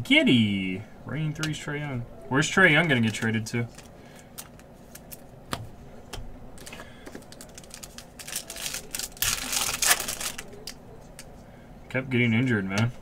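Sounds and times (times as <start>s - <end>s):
foil card pack tearing and crinkling: 6.6s - 10.7s.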